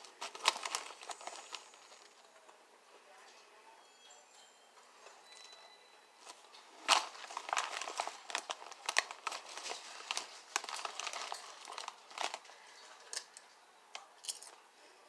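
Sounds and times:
plastic chip bag crinkling: 0.0s - 2.5s, 6.2s - 13.4s.

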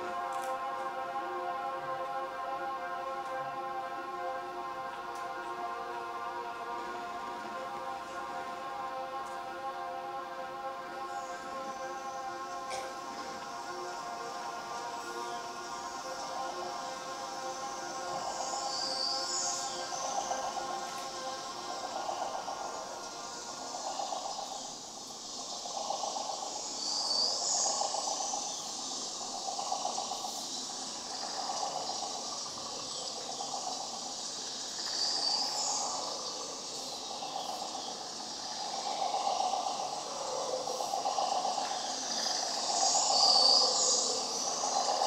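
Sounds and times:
hissing electronic texture: 11.0s - 45.0s.

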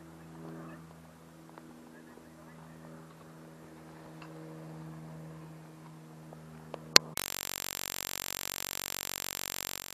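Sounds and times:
faint steady hum: 0.0s - 9.9s
loud static hiss: 7.2s - 9.9s.

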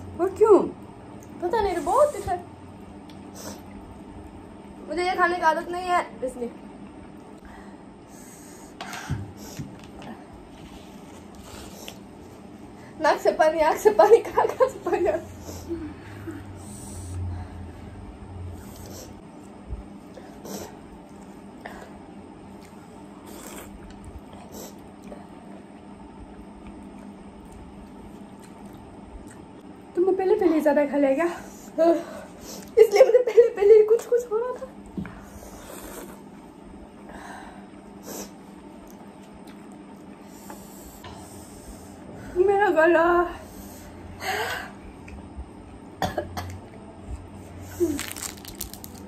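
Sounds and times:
steady low hum: 0.0s - 49.0s
slurping and chewing noodles: 22.5s - 25.1s
woman coughing: 46.0s - 46.6s.

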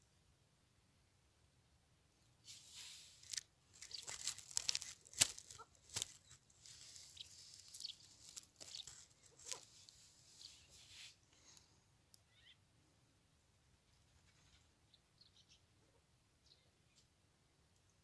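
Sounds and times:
dry straw rustling and crackling: 2.5s - 11.2s.

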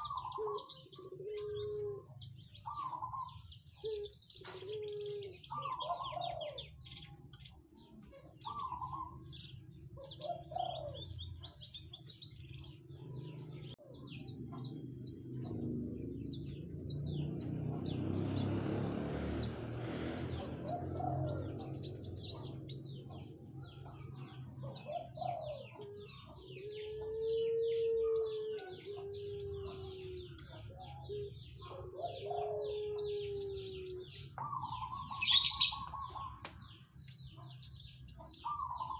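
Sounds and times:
bird chattering song: 0.0s - 38.9s.

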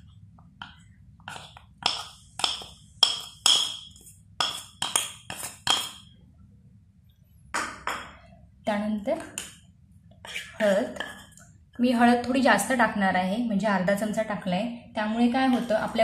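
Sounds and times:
spoon scraping bowl: 1.3s - 2.0s, 10.2s - 11.4s.

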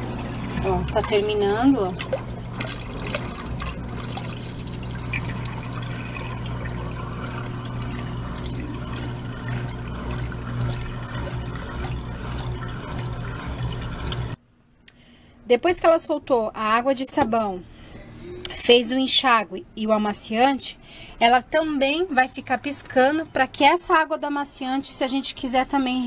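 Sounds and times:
water pouring into tub: 0.0s - 14.4s
low steady hum: 0.0s - 26.0s.

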